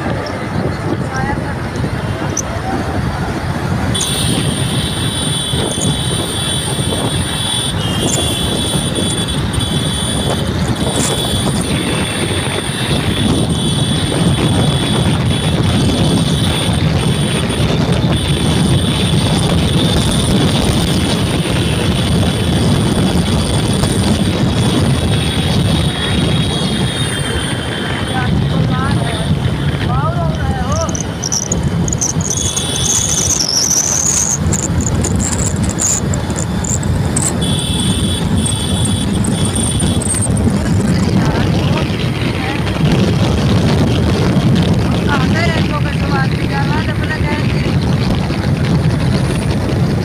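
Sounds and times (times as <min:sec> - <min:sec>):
bus passing: 0:00.0 - 0:34.8
engine and tyre rumble: 0:00.0 - 0:50.0
wind on microphone: 0:00.0 - 0:50.0
high whine: 0:29.1 - 0:43.1.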